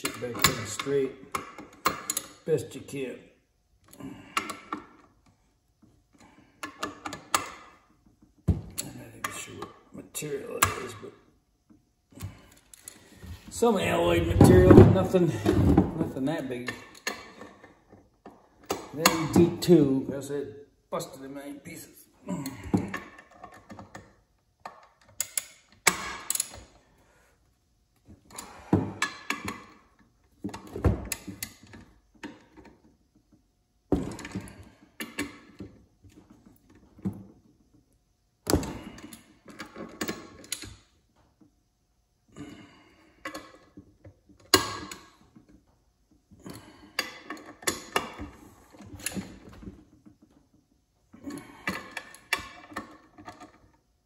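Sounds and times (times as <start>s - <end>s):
metal clinks and knocks: 0.0s - 2.5s.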